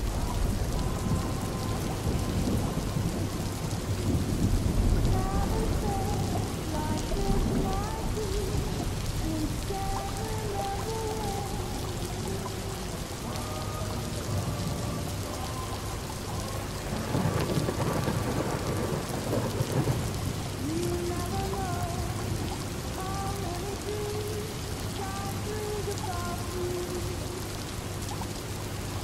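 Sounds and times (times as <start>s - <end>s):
thunder rolling: 0.0s - 23.1s
rain pattering on windows: 0.0s - 29.0s.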